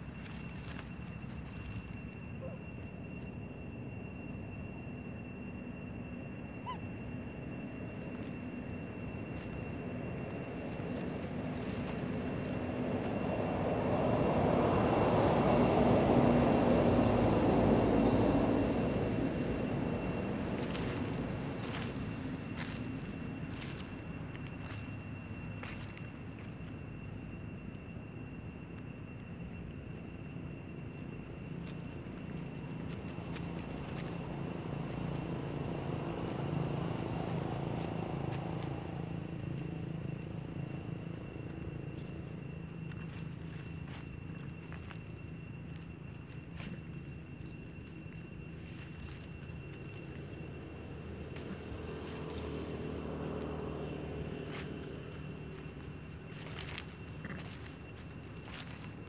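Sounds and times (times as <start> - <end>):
low engine drone: 0.0 - 59.0
motor vehicle passing by: 33.3 - 41.2, 50.8 - 57.4.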